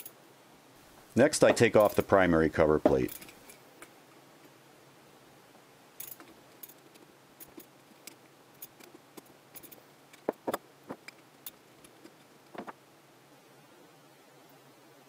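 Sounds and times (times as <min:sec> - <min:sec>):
metallic clinks: 0:01.5 - 0:02.1, 0:02.9 - 0:03.6, 0:06.0 - 0:11.7.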